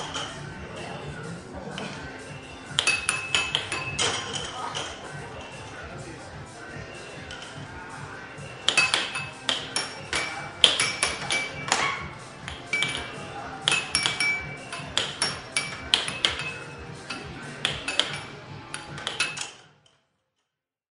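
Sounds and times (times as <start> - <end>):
air hockey puck clacking: 2.8 - 5.0, 8.6 - 11.8, 12.4 - 19.6.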